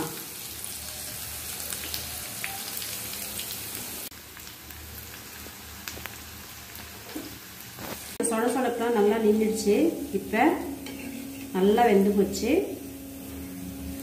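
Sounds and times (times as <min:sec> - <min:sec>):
oil sizzling with small pops: 0:00.0 - 0:08.2.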